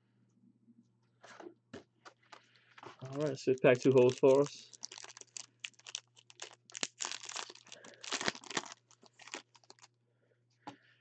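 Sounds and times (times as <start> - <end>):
foil wrapper crinkling and tearing: 3.0 - 9.9.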